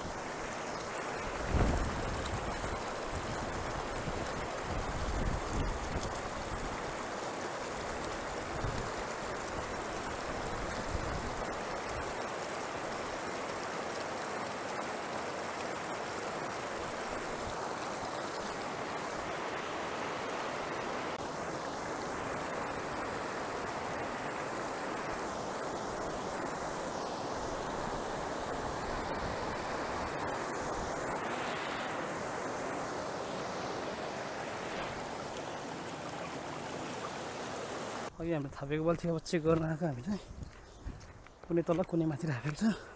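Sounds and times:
river rapids rushing: 11.6s - 38.1s.

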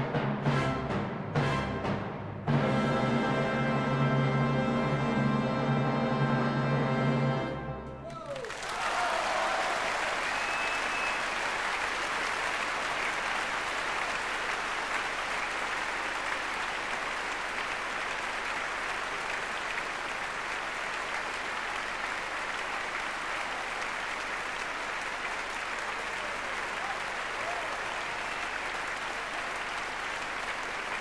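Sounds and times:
audience applauding: 8.0s - 31.0s.

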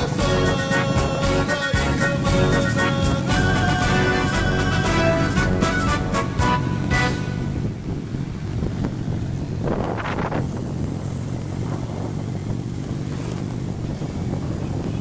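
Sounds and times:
motorcycle engines rumbling: 0.0s - 15.0s
wind buffeting microphone: 6.3s - 15.0s.

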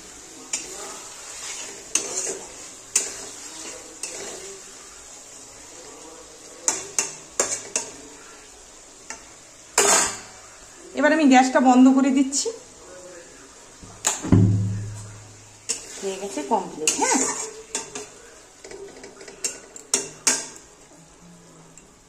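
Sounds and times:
gravy simmering sizzle: 0.0s - 22.0s
wooden spatula scraping pan: 0.5s - 4.8s, 14.9s - 18.2s.

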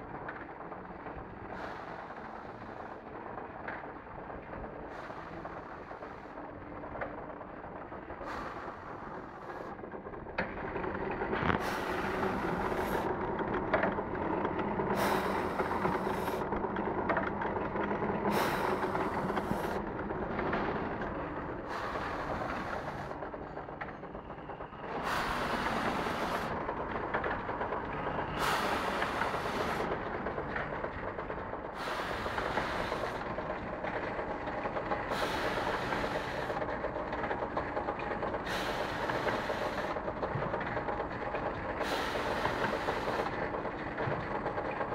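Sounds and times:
machine clatter and hum: 0.0s - 44.9s
machine hiss: 11.6s - 13.1s, 15.0s - 16.4s, 18.3s - 19.8s, 21.6s - 23.1s, 25.0s - 26.5s, 28.4s - 29.9s, 31.8s - 33.4s, 35.0s - 36.6s, 38.4s - 40.0s, 41.8s - 43.3s.

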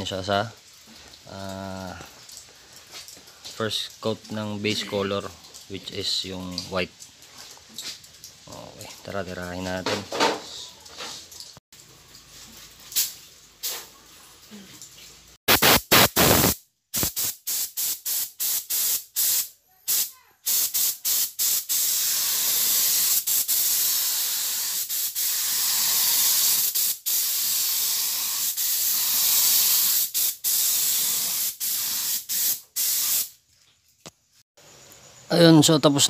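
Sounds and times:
spray gun hissing: 15.5s - 33.3s.

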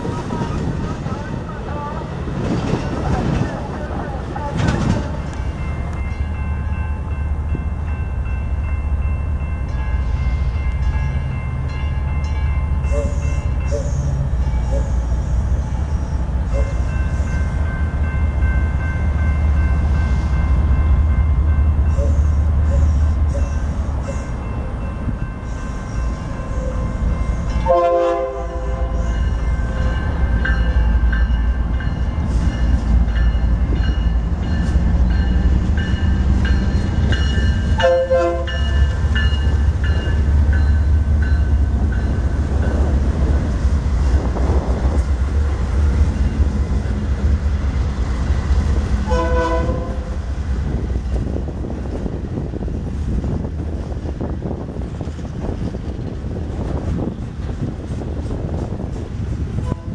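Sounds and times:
freight train rumbling past: 0.0s - 59.9s
train horn blasts: 12.9s - 15.8s, 21.8s - 24.2s, 25.9s - 29.3s, 37.8s - 38.8s, 49.0s - 50.2s, 59.6s - 59.9s.

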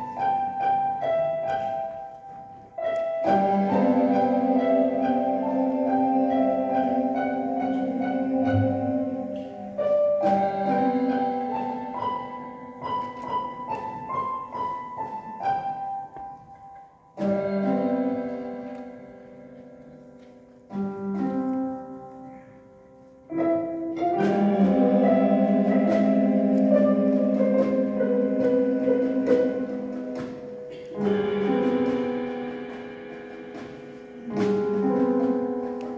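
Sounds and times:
mallet percussion notes: 0.0s - 35.9s
orchestra playing held chords: 2.9s - 13.2s, 17.2s - 22.4s, 23.3s - 35.9s.

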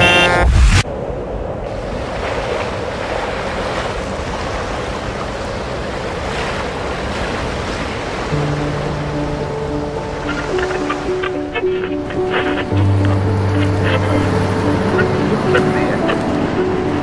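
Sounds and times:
horn blast: 0.0s - 0.8s
ocean surf on beach: 0.0s - 17.0s.

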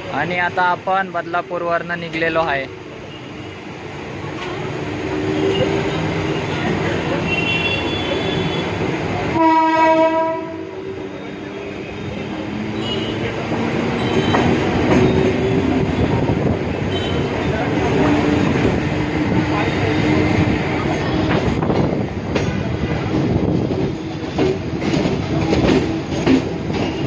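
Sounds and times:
train wheel and running noise: 0.0s - 27.0s
train horn blast: 7.2s - 11.0s.

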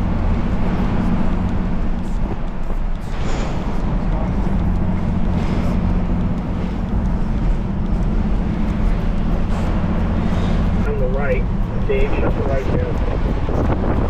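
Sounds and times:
motorcycle engine running: 0.0s - 14.0s
road noise: 0.0s - 14.0s
wind noise: 0.0s - 14.0s.

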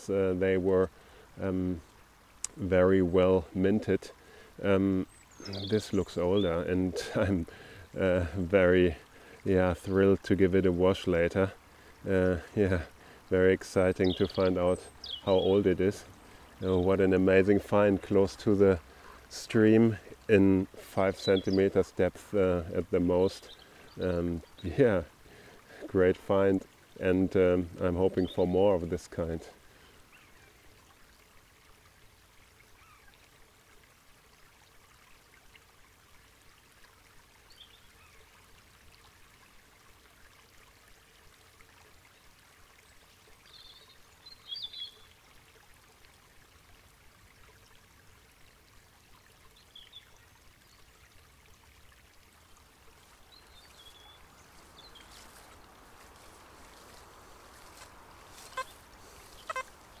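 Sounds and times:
stream rushing: 0.0s - 37.4s, 50.9s - 60.0s
bird chirps: 58.4s - 59.8s.

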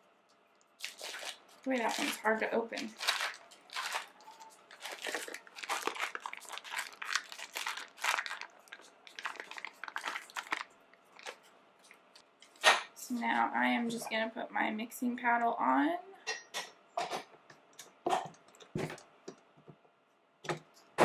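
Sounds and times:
foil wrapper crinkling: 0.6s - 11.5s.

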